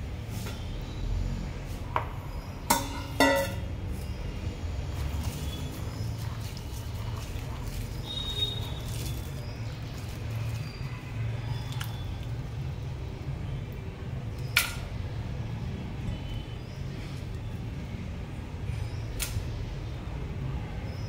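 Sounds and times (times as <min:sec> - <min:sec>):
clink on steel pot: 0:02.7 - 0:03.7.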